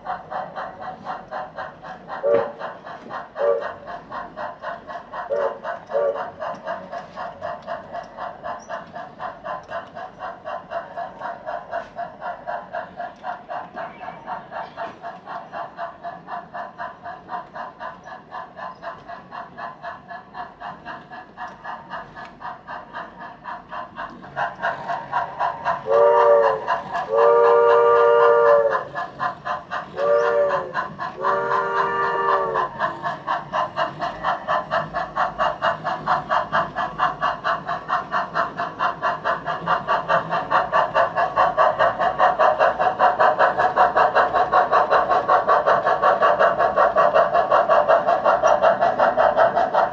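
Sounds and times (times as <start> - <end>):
model steam locomotive chuffing: 0.0 - 49.9
steam whistle blasts: 3.4 - 3.6, 5.3 - 6.2, 25.9 - 28.8, 30.0 - 32.6.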